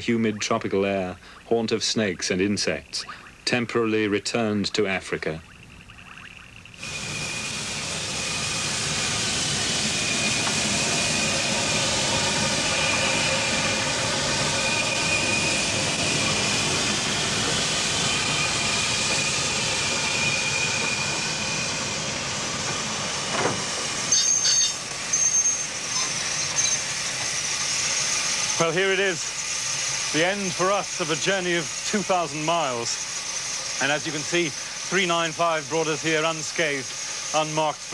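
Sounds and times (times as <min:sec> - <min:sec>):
steam train rushing: 0:06.8 - 0:37.9
thin high squeal: 0:24.1 - 0:26.9.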